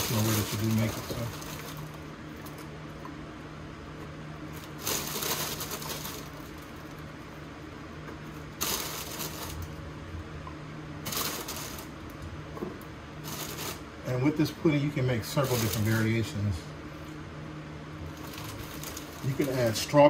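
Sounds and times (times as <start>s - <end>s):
crinkly rustling of wafers: 0.0s - 2.0s, 4.5s - 7.0s, 8.6s - 9.7s, 11.0s - 11.9s, 13.2s - 13.8s, 15.2s - 16.2s, 18.1s - 20.0s
steady low hum: 0.0s - 20.0s.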